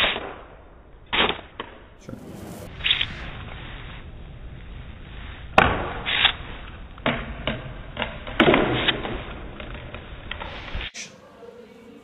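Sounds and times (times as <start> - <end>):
flying cards swishing: 2.0 - 4.2.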